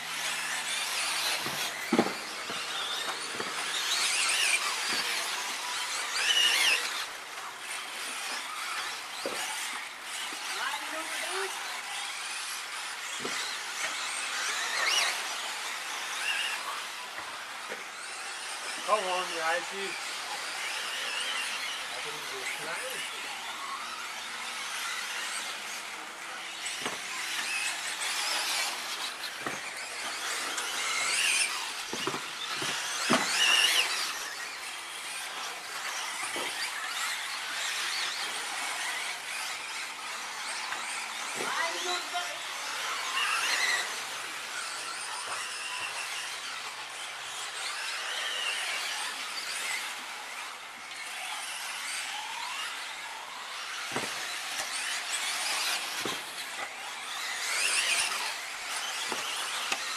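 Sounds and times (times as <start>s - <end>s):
rc car motors whining: 0.0s - 59.9s
rc cars landing knocks: 0.2s - 10.5s, 23.0s - 46.1s, 53.6s - 59.9s.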